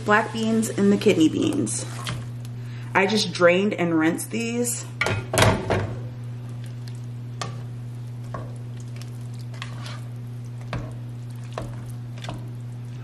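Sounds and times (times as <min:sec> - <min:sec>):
faint sizzle: 0:00.0 - 0:05.0, 0:05.9 - 0:13.0
steady low hum: 0:00.0 - 0:13.0
spatula scraping pot: 0:09.4 - 0:10.9.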